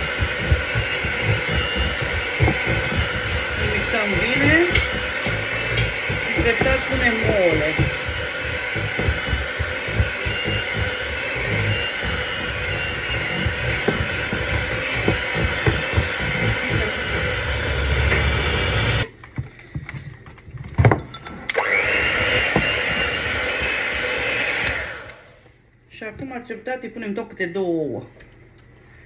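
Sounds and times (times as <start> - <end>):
electric hand mixer running: 0.0 - 19.1, 21.5 - 25.4.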